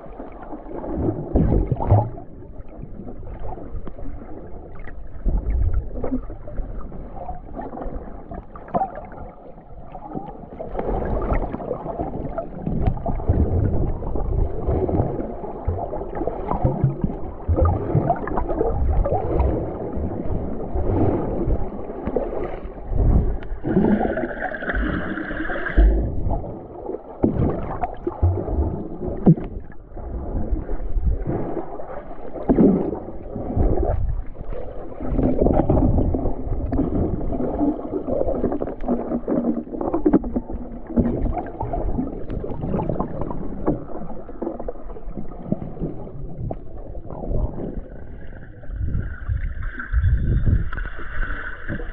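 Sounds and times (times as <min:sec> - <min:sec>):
underwater sloshing and gurgling: 0:00.0 - 0:51.9
low underwater thumps: 0:01.2 - 0:02.4, 0:12.6 - 0:31.3.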